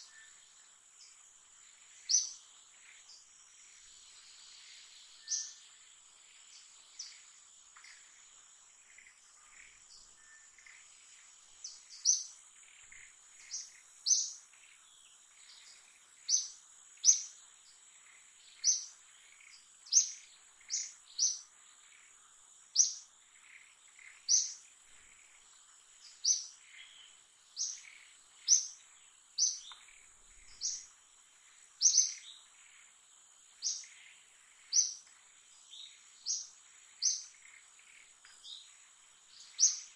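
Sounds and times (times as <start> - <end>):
bird chirping: 0.0 - 39.9
high-pitched insect drone: 1.7 - 8.2.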